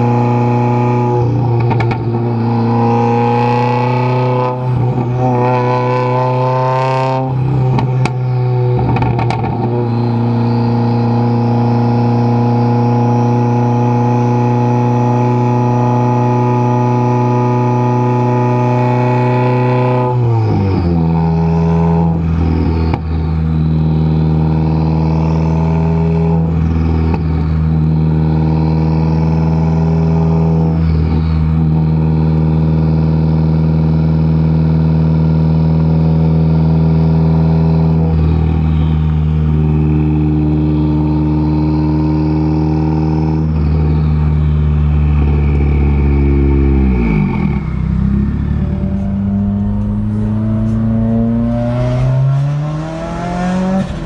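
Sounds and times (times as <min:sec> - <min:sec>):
car exhaust drone: 0:00.0 - 0:54.0.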